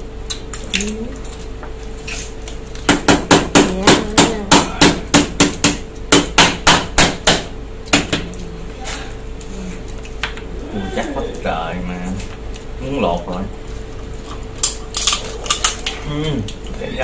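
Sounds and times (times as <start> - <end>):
hard ringing knocks: 2.9 - 8.2.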